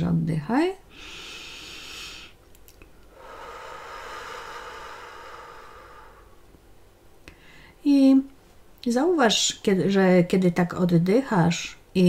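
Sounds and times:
woman breathing: 0.9 - 2.4, 3.1 - 6.6, 7.2 - 7.8.

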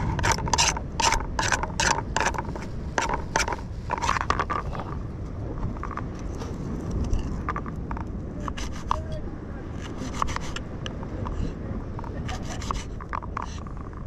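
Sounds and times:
knife rasping on fish: 0.0 - 4.8.

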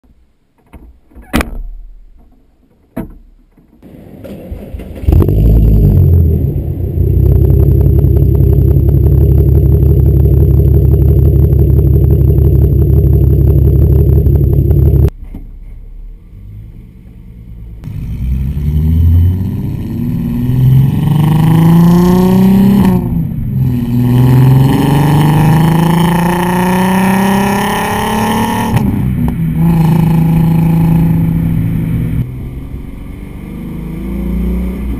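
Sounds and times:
car engine starting and idling: 3.8 - 34.9
car engine revving while driving: 5.1 - 15.1, 17.8 - 34.9.

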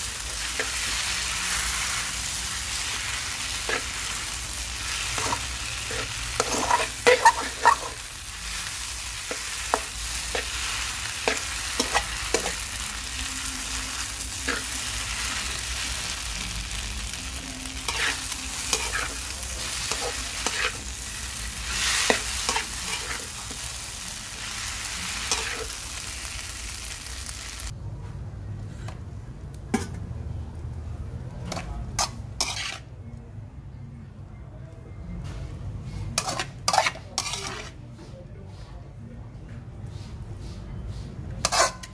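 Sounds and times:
noodles sizzling in wok: 0.0 - 27.7
spatula scraping wok: 0.0 - 27.7, 31.5 - 33.0, 36.0 - 37.8, 40.5 - 41.9.

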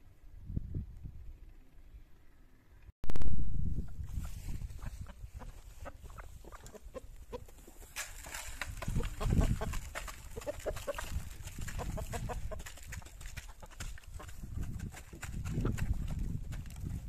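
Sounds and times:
hens clucking: 3.8 - 16.3
pecking and scratching clicks: 6.1 - 17.0.

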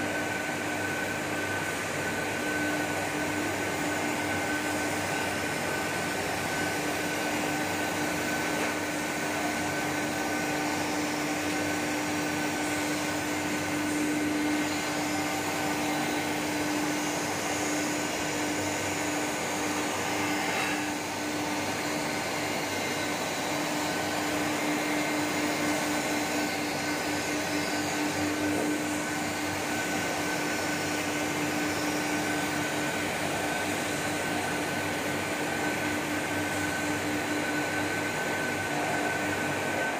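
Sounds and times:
machinery humming: 0.0 - 39.9.

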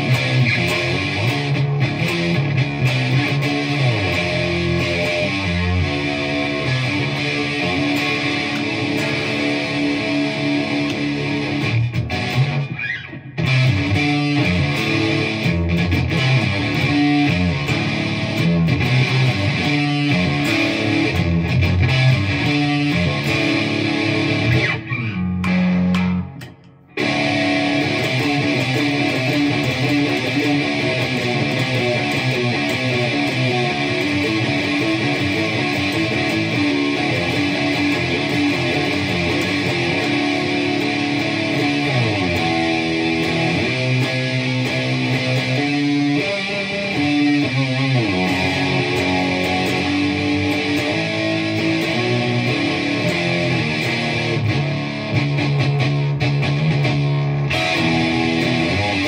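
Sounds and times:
electric guitar metal riffs: 0.0 - 59.0.

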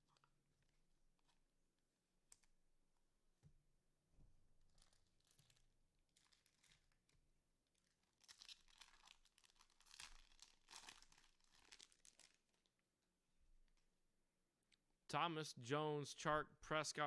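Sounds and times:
wrapper crinkling and tearing: 4.6 - 12.7.

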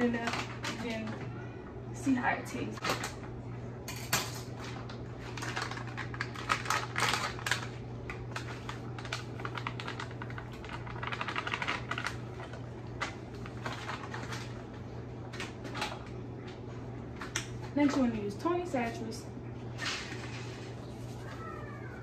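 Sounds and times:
plastic bag crinkling: 4.7 - 16.1.

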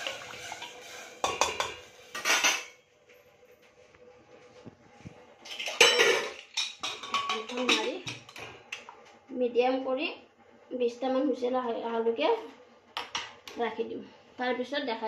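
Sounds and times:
metal pots clattering: 0.0 - 2.9, 5.4 - 8.6.

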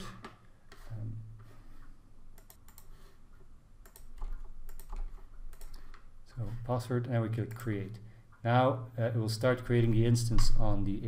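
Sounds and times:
keyboard keys clicking: 3.8 - 5.8.

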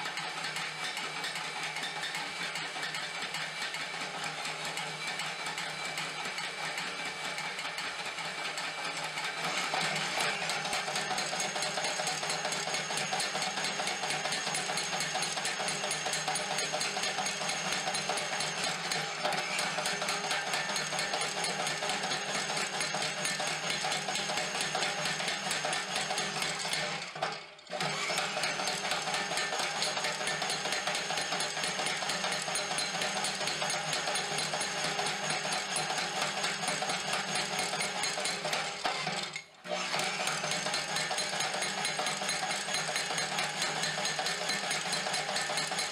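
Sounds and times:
hammer striking metal rattle: 29.2 - 38.8.

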